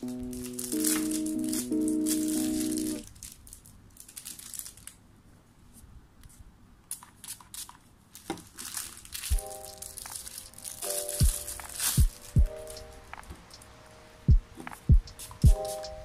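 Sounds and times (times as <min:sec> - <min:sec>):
background music: 0:00.0 - 0:03.0, 0:09.3 - 0:16.0
plastic packaging crinkling: 0:00.0 - 0:05.2, 0:06.9 - 0:13.1.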